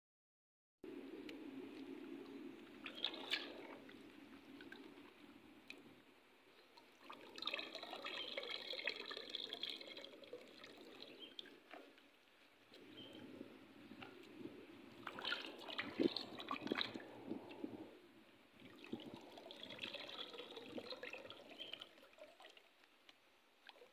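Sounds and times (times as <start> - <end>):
water splashing and trickling: 2.6 - 6.0, 6.6 - 23.9
water pouring into stream: 2.8 - 3.9, 6.8 - 11.9, 15.0 - 17.2, 18.6 - 22.8.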